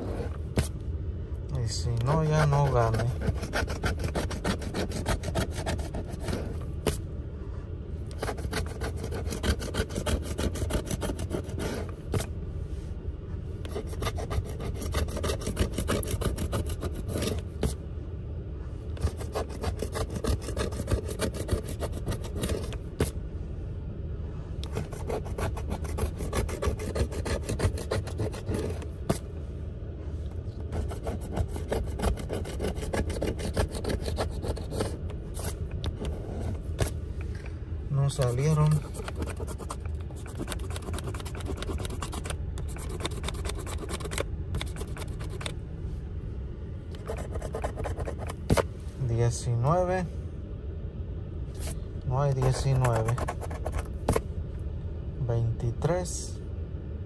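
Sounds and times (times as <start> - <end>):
coin scratching lottery ticket: 2.1 - 6.6, 8.2 - 12.2, 13.7 - 17.4, 19.0 - 23.1, 24.7 - 29.2, 30.7 - 36.9, 38.1 - 45.5, 47.0 - 48.6, 52.3 - 54.2.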